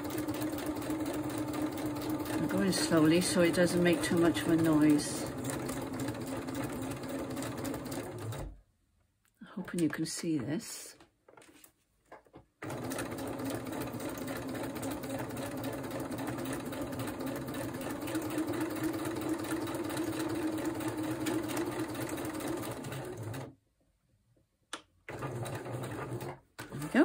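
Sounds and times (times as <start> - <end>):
electric sewing machine stitching: 0.0 - 8.6, 12.6 - 23.5, 25.1 - 27.0.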